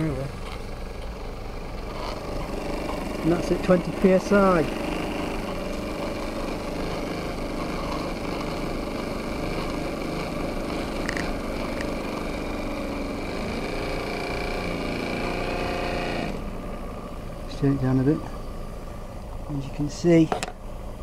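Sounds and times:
model steam engine running: 2.4 - 16.4.

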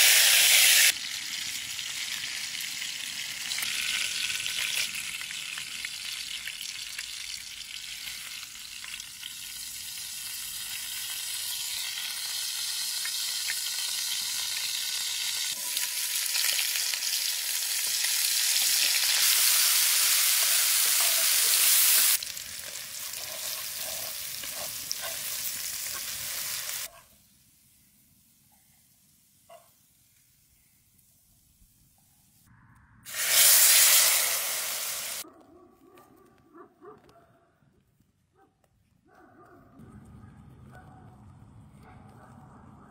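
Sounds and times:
oil sizzling in frying pan: 0.0 - 26.9, 33.1 - 35.2.

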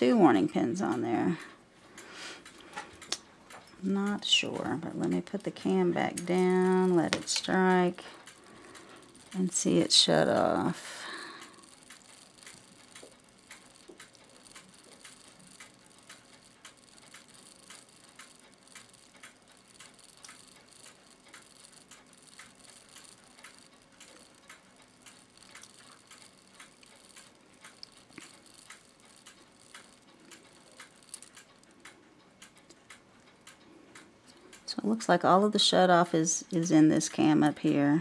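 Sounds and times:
clock movement clicking: 0.0 - 38.0.

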